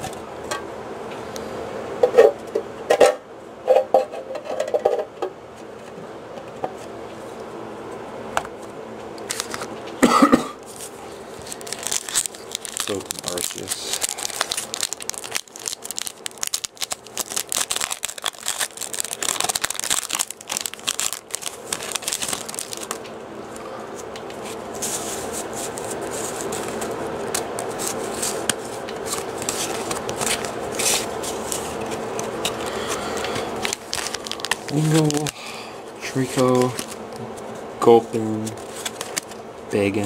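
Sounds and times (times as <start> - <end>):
steady buzzing hum: 0.0 - 40.0
cards being handled: 9.2 - 9.8, 10.6 - 35.4, 36.0 - 37.6, 38.3 - 39.4
foil wrapper crinkling and tearing: 9.3 - 9.7, 10.6 - 23.1, 24.6 - 35.4, 36.0 - 37.0, 38.3 - 39.4.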